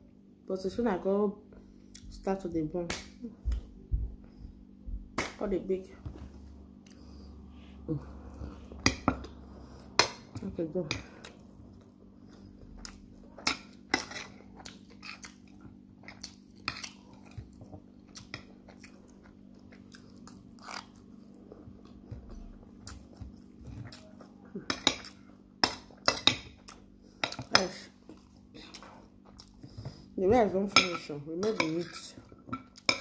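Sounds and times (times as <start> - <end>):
chewing: 11.2 - 24.4.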